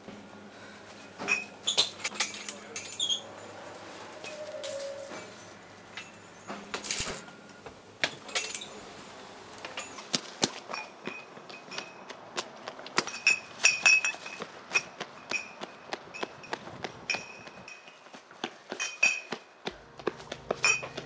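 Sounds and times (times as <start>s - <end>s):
running footsteps on pavement: 10.1s - 21.0s.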